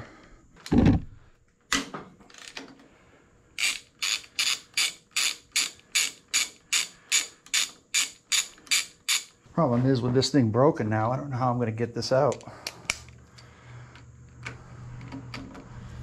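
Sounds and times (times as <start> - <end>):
ratchet wrench clicking: 3.6 - 9.3.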